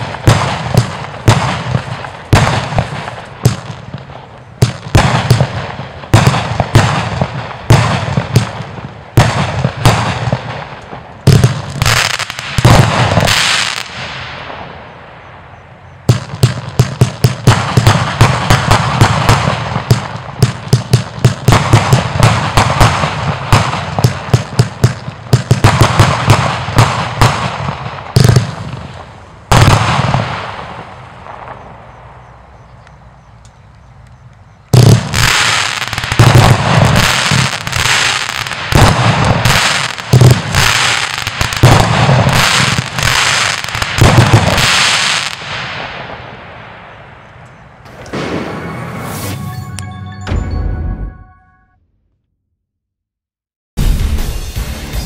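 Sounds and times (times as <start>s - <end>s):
fireworks bangs: 0.0s - 32.4s, 34.7s - 50.8s
fireworks crackling hiss: 34.8s - 46.1s, 47.8s - 49.6s.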